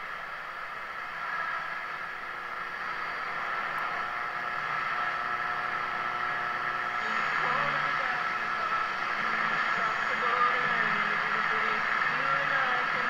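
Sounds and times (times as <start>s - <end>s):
radio static hiss: 0.0s - 13.0s.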